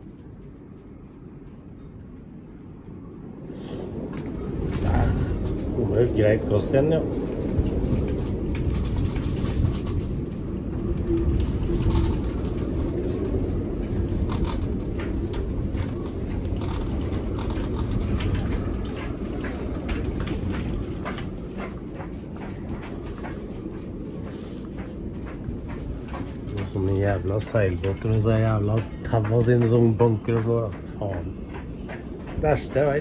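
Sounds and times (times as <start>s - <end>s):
wind buffeting boat: 0.0s - 33.0s
canopy tapping: 14.2s - 33.0s.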